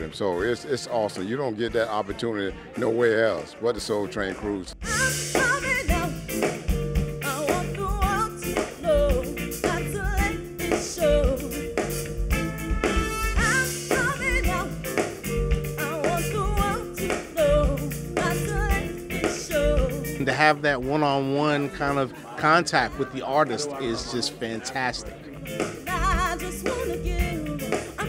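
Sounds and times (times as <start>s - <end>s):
band with drums and bass: 0.0s - 28.0s
lead singer singing: 4.8s - 6.5s, 7.2s - 12.0s, 13.3s - 15.2s, 15.8s - 24.2s, 25.5s - 28.0s.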